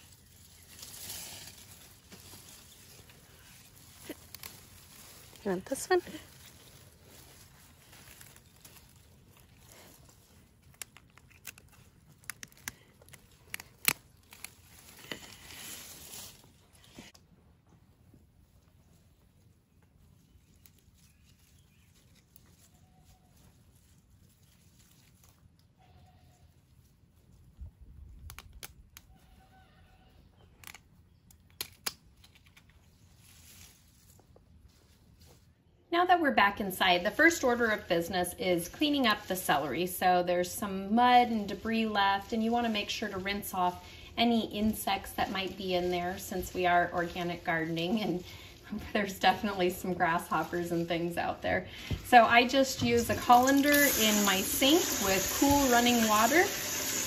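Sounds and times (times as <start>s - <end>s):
rustle of stalks and leaves: 0.0s - 17.3s, 18.0s - 29.7s, 30.4s - 57.0s
pruning shears cutting stalks: 0.6s - 6.6s, 7.4s - 17.2s, 52.2s - 57.0s.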